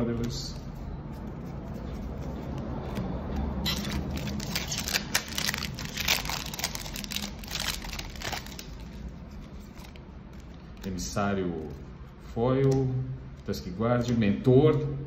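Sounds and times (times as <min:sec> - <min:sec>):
foil wrapper tearing and crinkling: 0:03.6 - 0:09.1.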